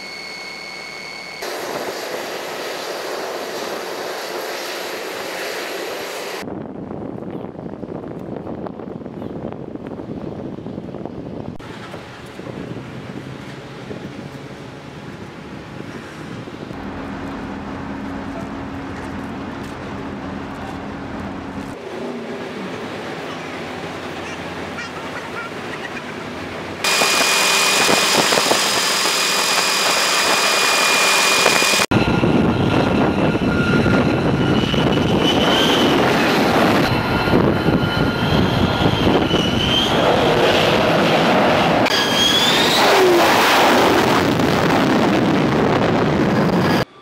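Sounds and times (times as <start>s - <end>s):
jet engine roar with turbine whine: 0.0s - 6.7s, 26.3s - 47.0s.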